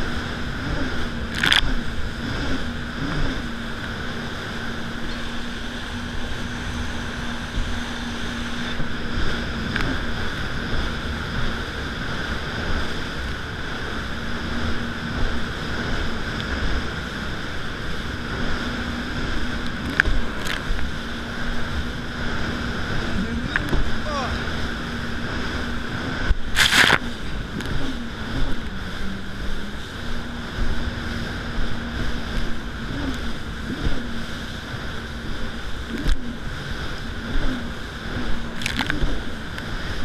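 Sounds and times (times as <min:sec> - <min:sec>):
hull slapping water: 0:00.0 - 0:40.0
jet ski engine running: 0:00.0 - 0:40.0
wind buffeting microphone: 0:00.0 - 0:40.0
water spray: 0:26.5 - 0:27.2.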